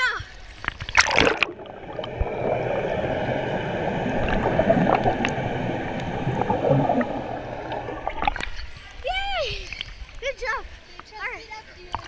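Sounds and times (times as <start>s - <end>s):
muffled underwater gurgling: 0.9s - 8.8s.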